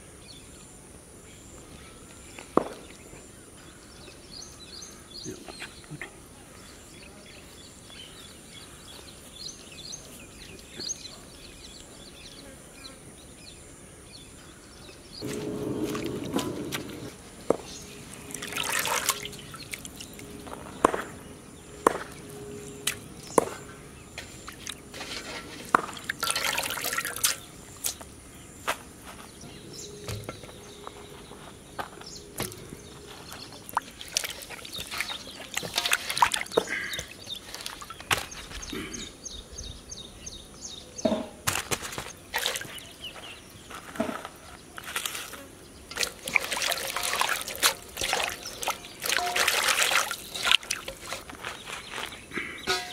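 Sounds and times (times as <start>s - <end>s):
water splashing in metal basin: 15.2s - 17.1s, 18.3s - 20.3s, 24.6s - 27.5s, 33.6s - 38.0s, 42.3s - 42.8s, 45.9s - 51.3s
knocks against metal basin: 52.7s - 52.9s.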